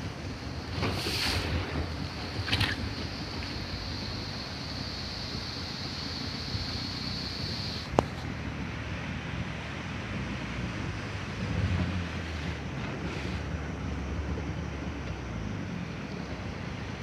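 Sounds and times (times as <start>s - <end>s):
sea waves breaking: 0.0s - 7.9s
wind rumbling on microphone: 0.0s - 17.0s.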